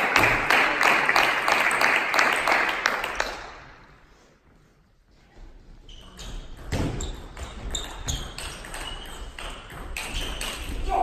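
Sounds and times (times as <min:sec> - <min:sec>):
table tennis ball bouncing: 0:06.2 - 0:11.0.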